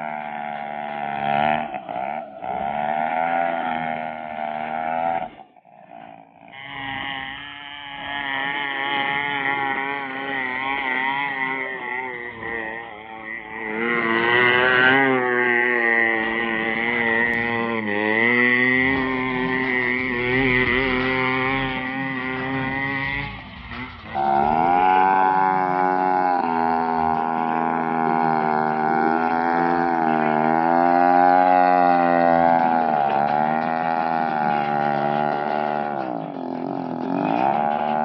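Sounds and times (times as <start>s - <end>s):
mini tractor engine under load: 16.4s - 25.6s, 26.3s - 38.0s.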